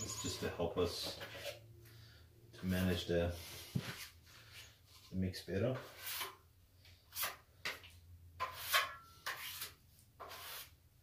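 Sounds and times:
knife scraping wet plaster: 5.8 - 6.5, 7.1 - 7.8, 8.4 - 10.8.

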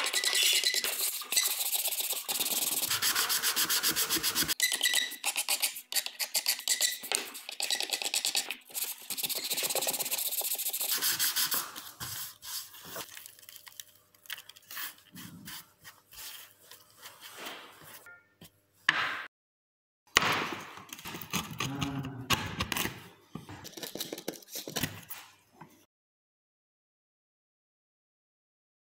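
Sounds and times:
hand tools scraping wood: 0.0 - 12.7.

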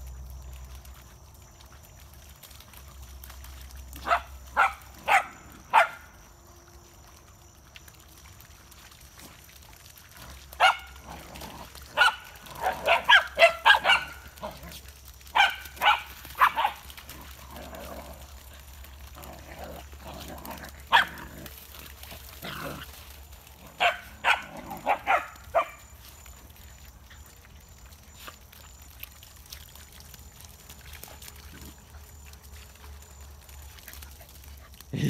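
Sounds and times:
dogs barking: 3.9 - 6.2, 10.4 - 17.4, 18.8 - 21.6, 23.5 - 25.9.

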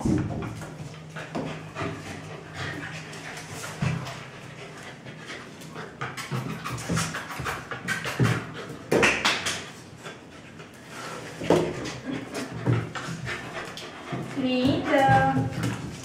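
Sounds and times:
dogs panting: 0.3 - 16.0
claws clicking on tiled floor: 5.6 - 10.7.

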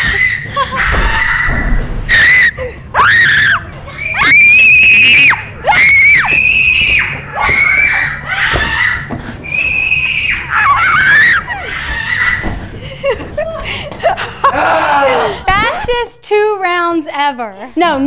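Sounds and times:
girls screaming playfully: 0.0 - 12.6.

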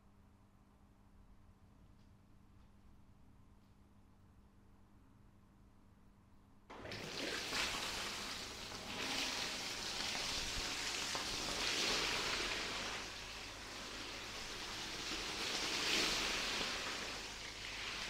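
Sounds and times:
water gushing from cleaning wand: 6.7 - 18.0
water splashing on tiled floor: 6.7 - 18.0.

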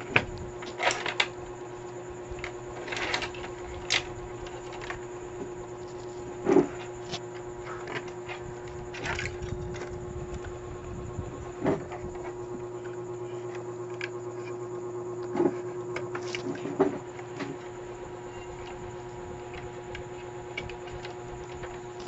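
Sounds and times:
steady electrical hum: 0.0 - 22.0.

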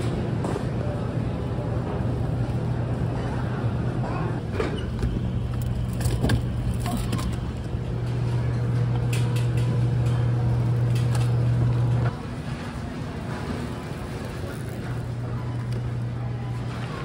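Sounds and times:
freezer low hum: 0.0 - 17.0
shopping cart rattling: 5.6 - 10.2.

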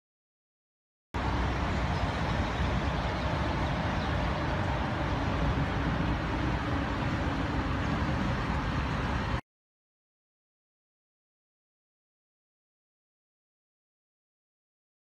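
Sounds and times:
faint engine hum: 1.2 - 9.4
road traffic rumble: 1.2 - 9.4.

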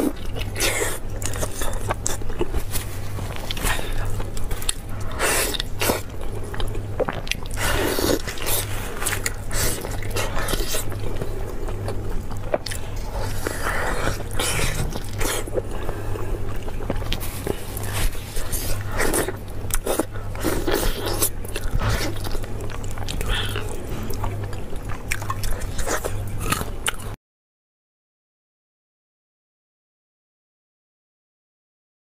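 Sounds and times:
steady low hum: 0.0 - 27.2
wet chewing and lip smacking: 0.0 - 27.2.

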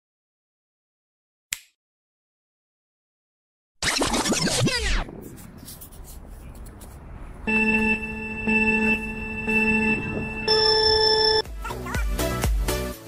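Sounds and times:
electronic countdown beeps: 7.4 - 11.5.

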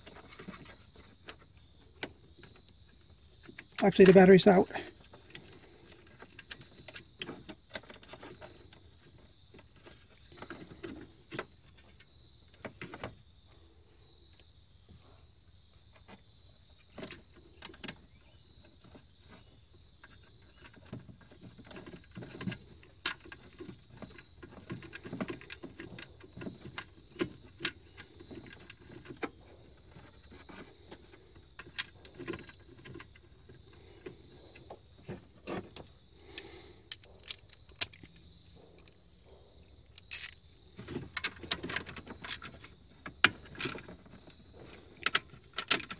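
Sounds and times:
connector clicks and rattles: 35.4 - 39.0, 39.8 - 44.1, 45.0 - 45.9.

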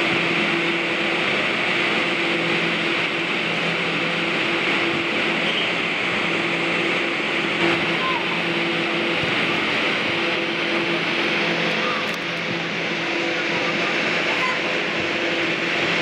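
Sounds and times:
blower fans droning: 0.0 - 16.0.

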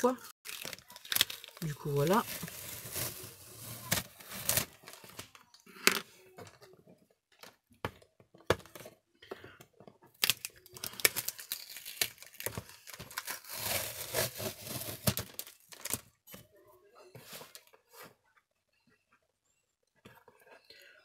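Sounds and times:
wrapping paper tearing and crinkling: 0.4 - 5.4, 10.2 - 16.0.

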